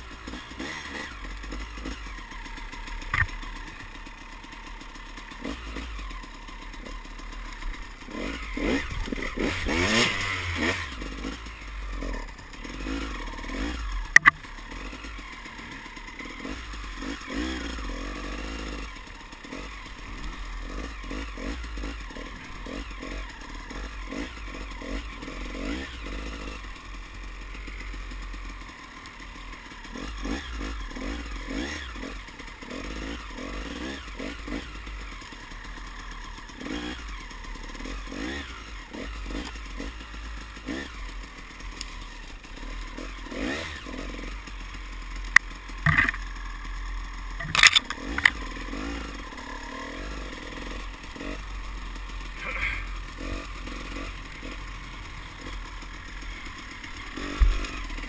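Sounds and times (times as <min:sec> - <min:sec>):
small engine revving: 0:00.0 - 0:58.0.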